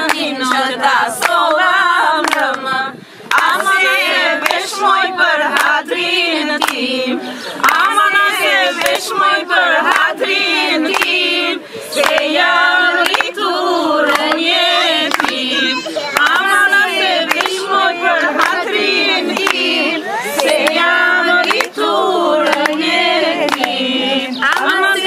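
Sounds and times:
hands clapping a beat: 0:00.0 - 0:02.7, 0:03.3 - 0:04.8, 0:05.4 - 0:05.8, 0:06.5 - 0:06.8, 0:07.6 - 0:10.2, 0:10.8 - 0:11.2, 0:12.0 - 0:13.4, 0:14.1 - 0:15.5, 0:16.1 - 0:19.8, 0:20.4 - 0:23.8, 0:24.4 - 0:25.0
women singing together: 0:00.0 - 0:25.0.

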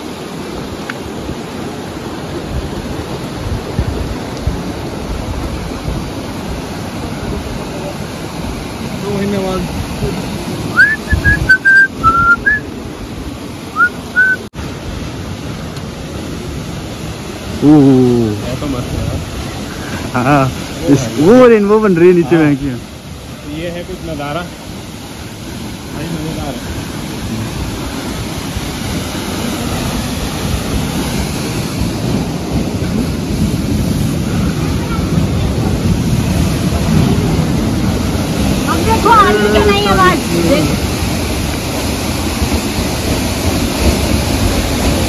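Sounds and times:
stream and waterfall rushing: 0:00.0 - 0:45.0
whistled notes: 0:10.7 - 0:12.7, 0:13.7 - 0:14.5.

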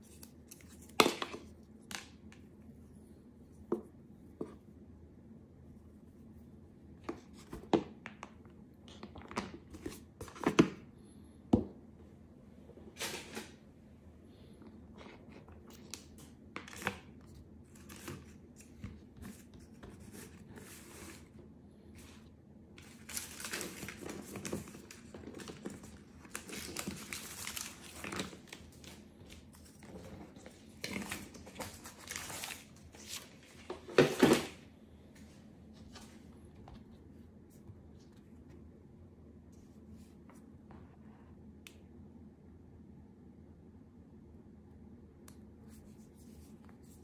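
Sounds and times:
packaging rustling and crinkling: 0:22.8 - 0:34.6.

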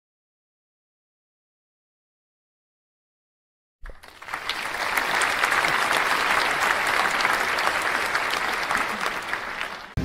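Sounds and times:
crowd clapping: 0:03.8 - 0:10.0.

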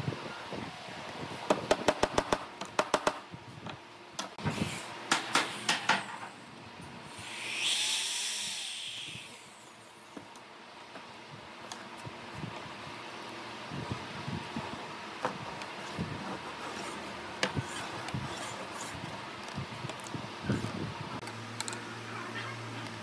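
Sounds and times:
cordless drill boring wood: 0:07.1 - 0:09.6.

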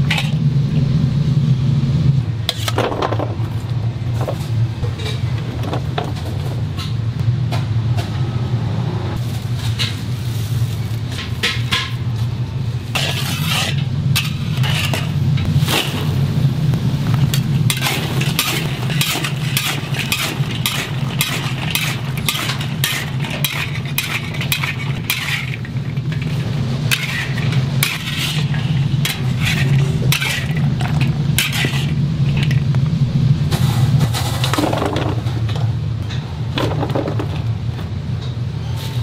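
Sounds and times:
steady low hum: 0:00.0 - 0:39.0
metal spatula scraping a wok: 0:02.5 - 0:02.8, 0:12.9 - 0:16.0, 0:17.4 - 0:32.6.

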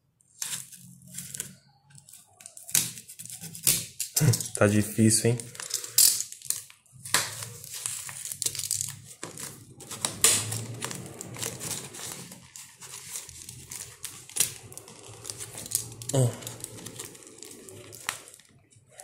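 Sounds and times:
knife scraping paper wrapping: 0:02.2 - 0:04.1, 0:06.5 - 0:19.0
packaging crinkling: 0:05.6 - 0:19.0.

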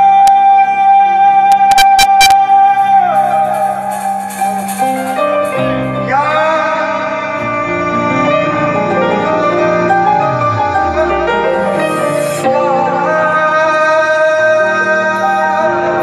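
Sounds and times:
man singing long wavering notes: 0:00.0 - 0:04.4, 0:05.5 - 0:16.0
keyboard and drum accompaniment: 0:00.0 - 0:16.0
sharp drum strikes: 0:03.2 - 0:06.0.

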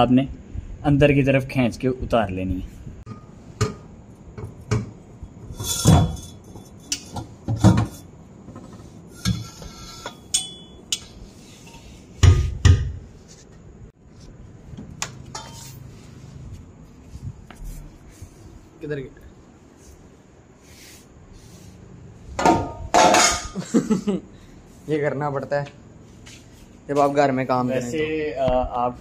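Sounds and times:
metal scraping: 0:05.3 - 0:12.2, 0:15.2 - 0:16.4.

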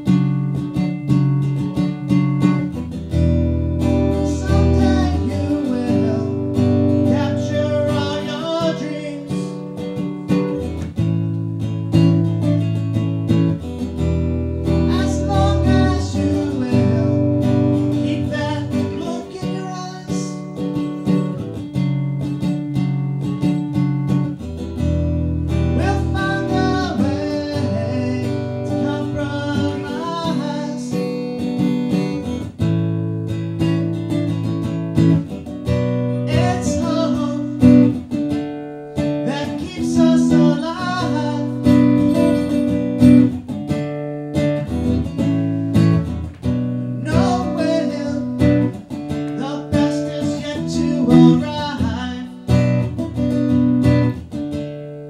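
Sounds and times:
acoustic guitar strumming: 0:00.0 - 0:55.0
man singing: 0:03.8 - 0:09.9, 0:14.6 - 0:21.4, 0:25.6 - 0:32.3, 0:36.1 - 0:38.3, 0:39.0 - 0:42.6, 0:47.0 - 0:53.1.

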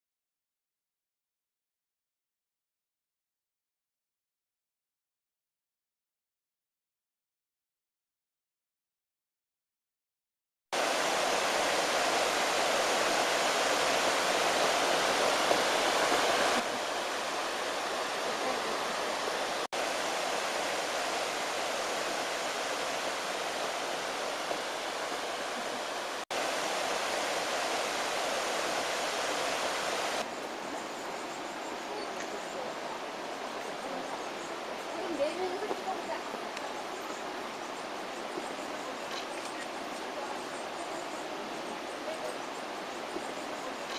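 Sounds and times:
waterfalls rushing into pool: 0:10.8 - 0:30.3.

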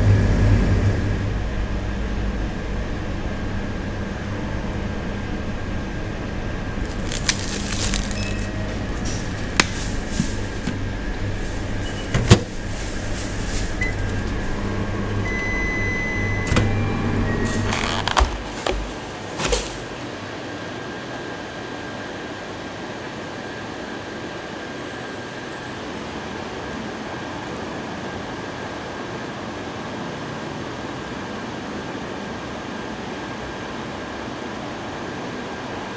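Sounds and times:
microwave oven humming: 0:00.0 - 0:35.9
long microwave beep: 0:08.1 - 0:09.0, 0:14.7 - 0:17.9.

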